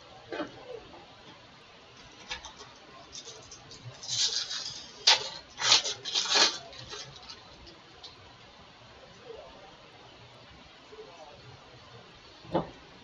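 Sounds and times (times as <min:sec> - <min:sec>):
foil wrapper crinkling and tearing: 0:02.1 - 0:07.7.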